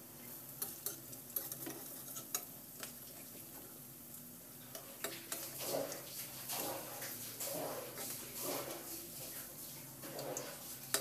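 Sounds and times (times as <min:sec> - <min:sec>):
food sizzling in oil: 0:00.0 - 0:11.0
metal spatula scraping pan: 0:05.3 - 0:08.9, 0:10.0 - 0:11.0.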